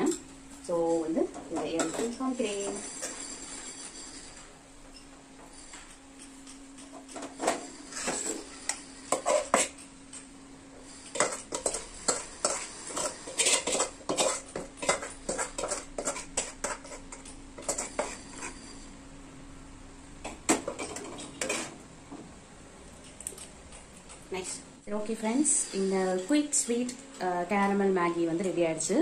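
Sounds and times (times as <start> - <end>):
ladle scraping metal pot: 7.5 - 9.8, 11.1 - 18.7, 20.7 - 21.8.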